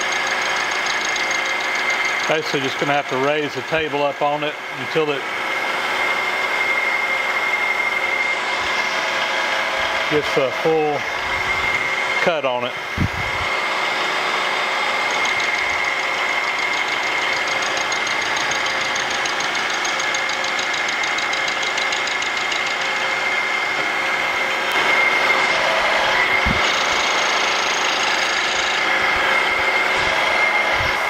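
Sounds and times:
milling machine cutting metal: 0.0 - 31.0.

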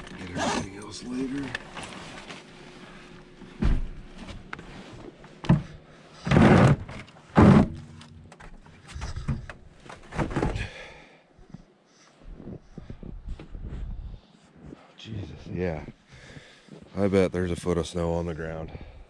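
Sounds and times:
thumps and scuffing of climbing: 1.8 - 10.8, 11.5 - 14.8.

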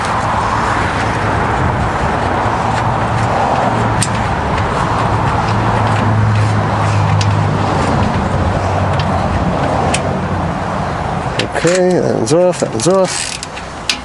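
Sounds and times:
motor vehicle hum: 0.0 - 14.0
ratchet wrench clicks: 12.8 - 14.0.

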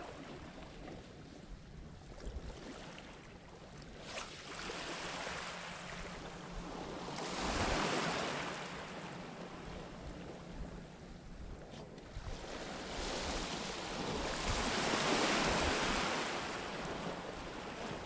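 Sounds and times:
wind on microphone: 5.9 - 8.3, 9.4 - 18.0.

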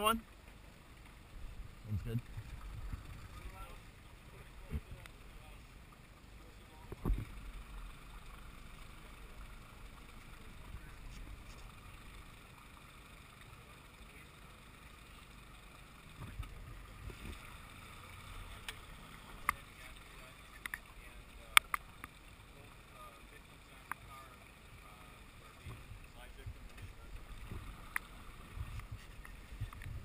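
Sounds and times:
water noise: 0.0 - 30.0
low wind rumble: 0.8 - 5.4, 25.5 - 30.0.

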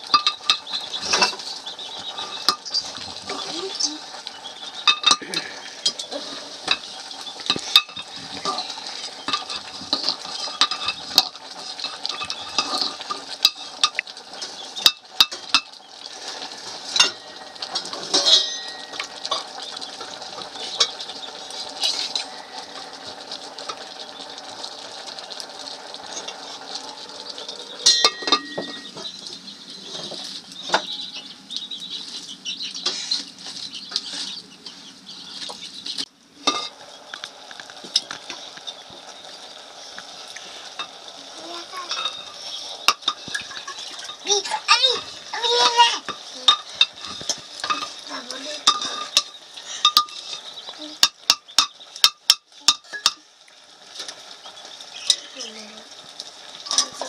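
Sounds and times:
food sizzling: 0.0 - 57.0
spoon clinking against pot: 17.0 - 19.5, 27.8 - 29.1, 51.0 - 53.2.

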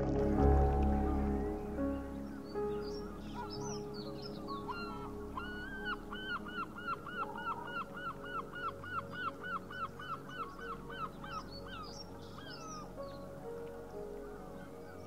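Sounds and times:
background music with sustained notes: 0.0 - 15.0
bird calling: 1.9 - 12.9.

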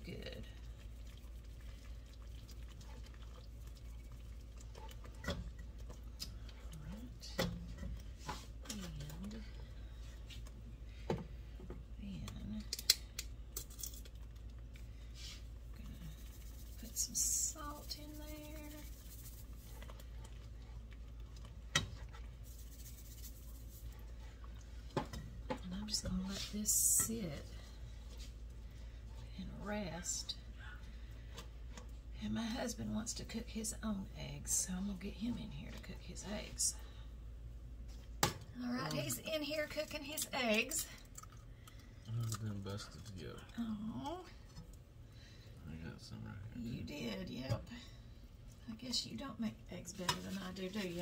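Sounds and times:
whisk scraping a skillet: 15.2 - 20.9, 21.7 - 25.2.

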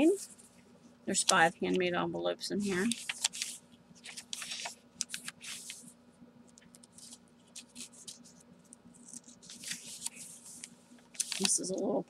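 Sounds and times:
paper rustling and sliding: 2.6 - 5.9, 6.9 - 8.4, 9.0 - 11.6.

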